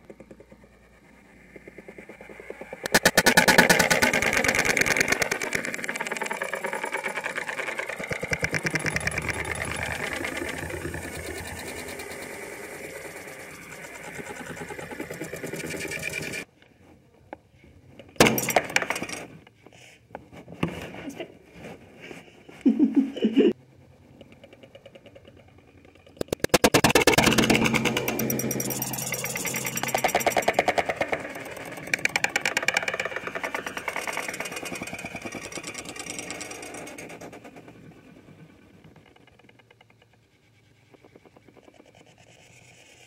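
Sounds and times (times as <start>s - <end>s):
scattered clicks and knocks: 0.0s - 16.5s, 18.0s - 19.6s, 24.0s - 43.0s.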